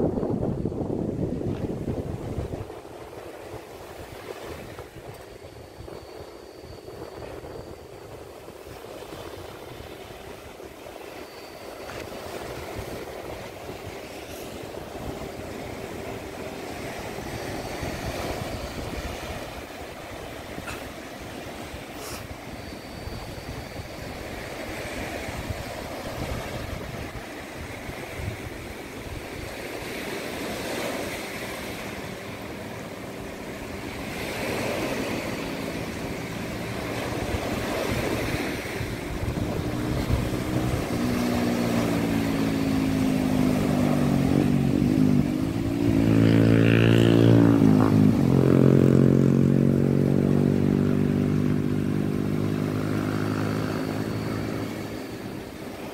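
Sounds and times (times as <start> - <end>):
waves breaking on a beach: 0.0 - 55.9
wind rumble on microphone: 0.0 - 55.9.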